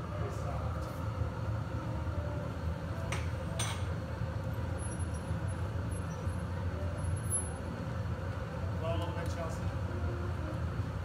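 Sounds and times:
gas furnace roaring: 0:00.0 - 0:11.0.

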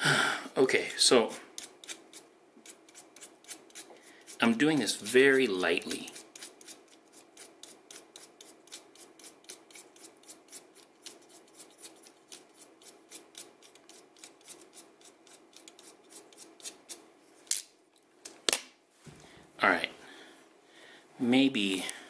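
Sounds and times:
knife blade shaving pencil wood: 0:01.6 - 0:17.0.

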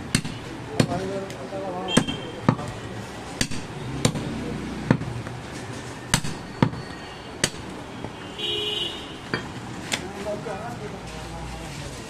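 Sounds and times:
cleaver chopping meat and bone: 0:00.0 - 0:05.1, 0:06.1 - 0:07.8.

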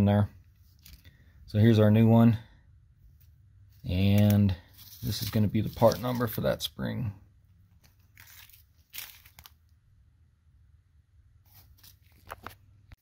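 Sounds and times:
crinkling and rustling: 0:00.5 - 0:01.1, 0:03.2 - 0:06.5, 0:07.7 - 0:09.8, 0:11.4 - 0:13.0.

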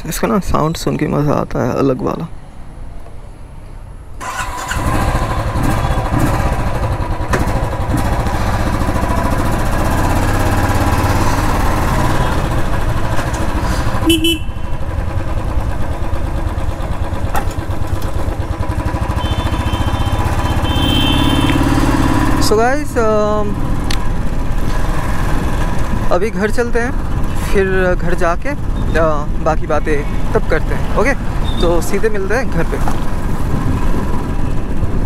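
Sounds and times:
motorcycle engine running: 0:04.6 - 0:26.1.

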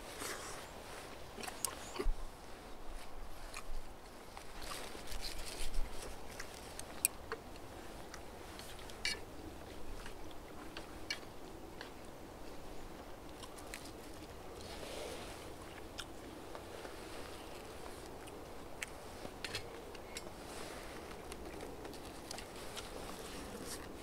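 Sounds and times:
person chewing and crunching: 0:13.2 - 0:14.8, 0:15.6 - 0:20.4, 0:21.0 - 0:24.0.

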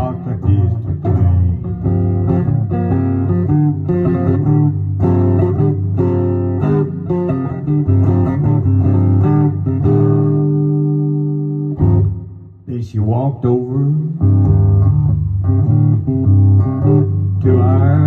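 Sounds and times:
electric guitar country instrumental: 0:00.0 - 0:18.0.

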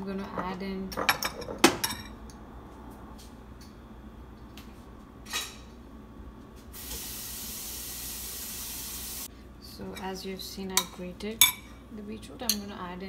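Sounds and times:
kitchenware clinking: 0:00.2 - 0:02.2
steady high hiss: 0:06.7 - 0:09.3.

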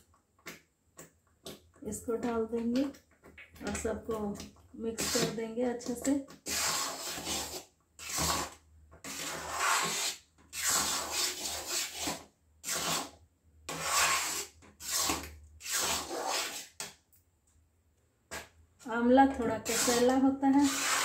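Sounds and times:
metal spatula scraping and stirring: 0:04.4 - 0:16.9, 0:19.3 - 0:21.0.

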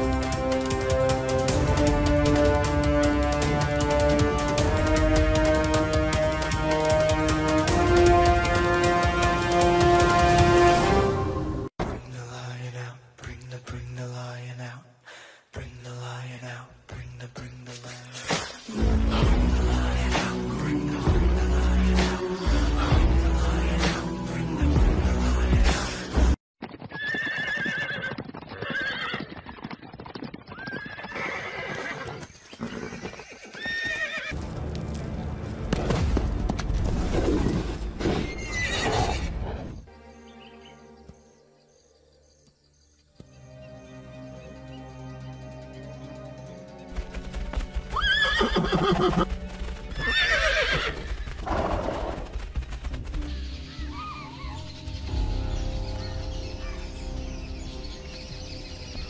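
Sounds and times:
music: 0:00.0 - 0:26.4, 0:34.3 - 0:59.0
fast hoofbeats: 0:26.6 - 0:34.8, 0:46.9 - 0:55.1
horses neighing: 0:26.9 - 0:29.6, 0:30.4 - 0:34.4, 0:38.0 - 0:39.4, 0:47.8 - 0:52.4.

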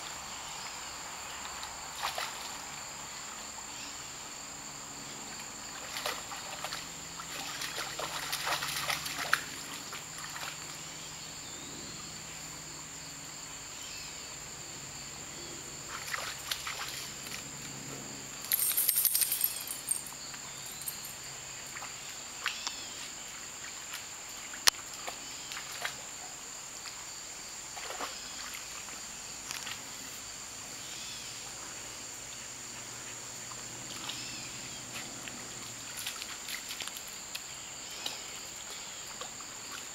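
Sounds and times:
insects droning: 0:00.0 - 0:39.9
dog digging in water and mud: 0:05.7 - 0:10.9, 0:15.9 - 0:17.8, 0:33.5 - 0:39.9.

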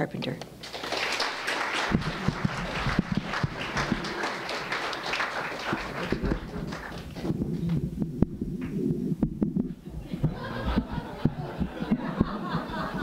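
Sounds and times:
audience applauding: 0:00.6 - 0:07.8, 0:10.2 - 0:13.0.

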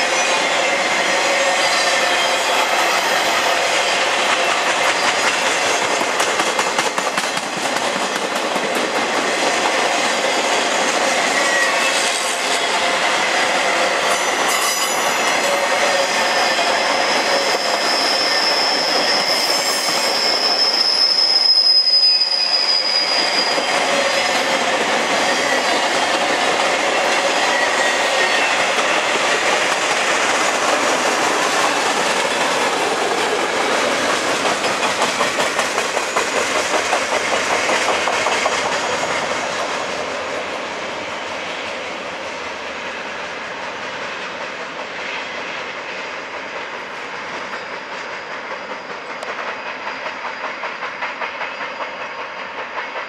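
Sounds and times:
high wheel squeal: 0:00.0 - 0:06.0, 0:10.2 - 0:34.1
train wheels clattering on track: 0:00.0 - 0:53.0.

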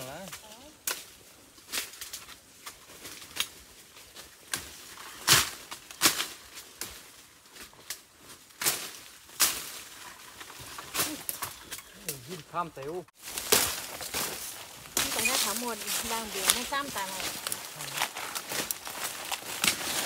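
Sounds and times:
machete chopping wood: 0:19.5 - 0:20.0.

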